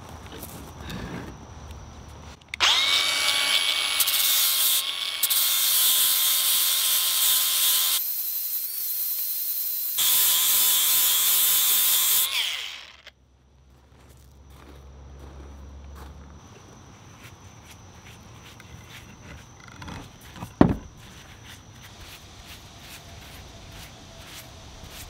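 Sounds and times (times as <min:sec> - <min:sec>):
angle grinder grinding steel: 0:02.5 - 0:13.1.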